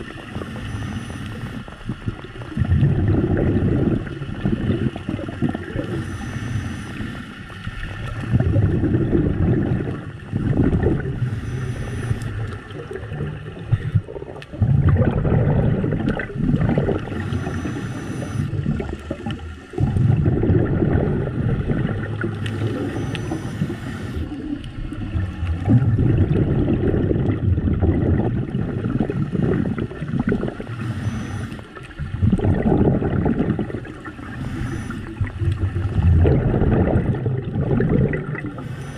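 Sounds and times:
exhaust bubbles rushing: 0.0s - 0.5s, 1.9s - 6.0s, 7.8s - 11.3s, 12.4s - 17.7s, 18.5s - 23.0s, 24.3s - 30.8s, 31.8s - 34.4s, 35.0s - 38.7s
regulator hiss on inhale: 0.4s - 1.8s, 5.8s - 7.6s, 11.2s - 12.6s, 17.1s - 18.5s, 22.4s - 24.7s, 30.7s - 31.8s, 34.2s - 35.3s, 38.5s - 38.9s.

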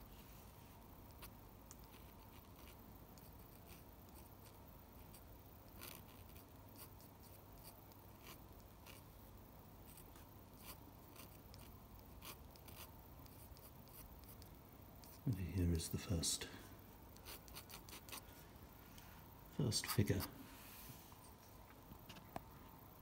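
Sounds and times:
pen nib scratching on paper: 1.1s - 9.1s, 9.8s - 15.4s, 17.1s - 18.3s, 19.7s - 20.3s.

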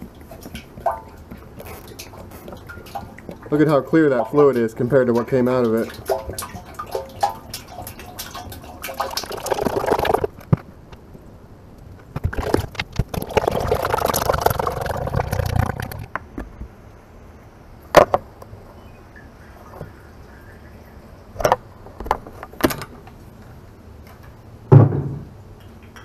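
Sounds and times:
oil pouring from a plastic jug: 0.0s - 10.4s, 12.2s - 16.1s.

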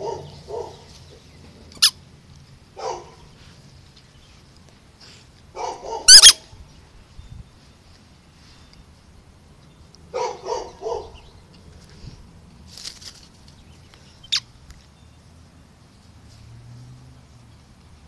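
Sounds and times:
small dog barking: 0.0s - 0.9s, 2.8s - 3.3s, 5.5s - 6.4s, 10.1s - 11.2s.

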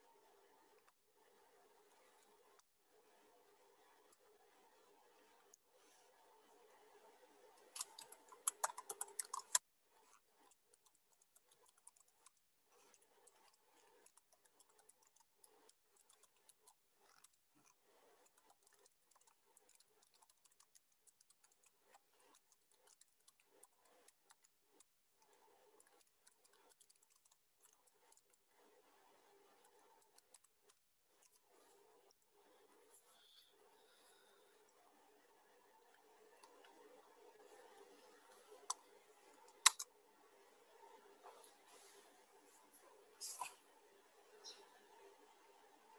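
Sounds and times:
computer keys tapping: 7.7s - 9.6s, 25.7s - 28.3s.

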